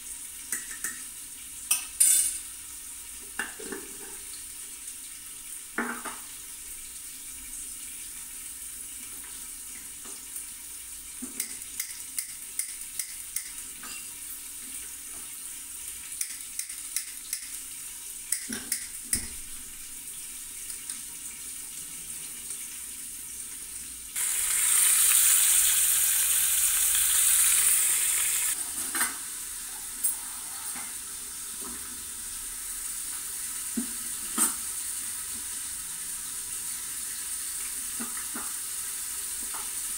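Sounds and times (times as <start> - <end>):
pot of water hissing: 24.1 - 39.9.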